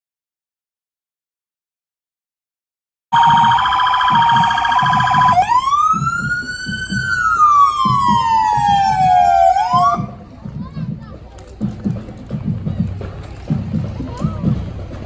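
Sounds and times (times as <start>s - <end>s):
emergency vehicle siren: 3.2s - 10.2s.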